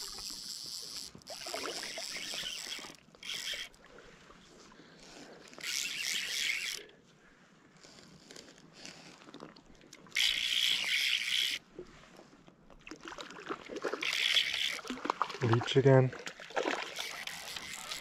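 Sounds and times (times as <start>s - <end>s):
fly line hissing pulls: 0.0s - 3.8s, 5.5s - 6.8s, 10.2s - 11.6s, 16.9s - 18.0s.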